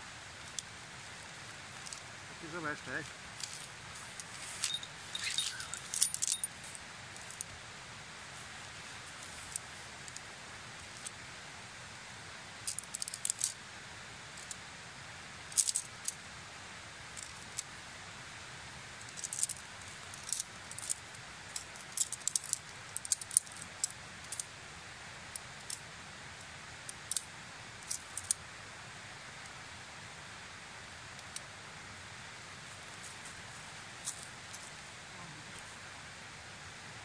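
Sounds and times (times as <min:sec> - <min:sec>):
background hiss: 0:00.0 - 0:37.0
tent poles clicking: 0:03.0 - 0:07.5, 0:19.1 - 0:24.4.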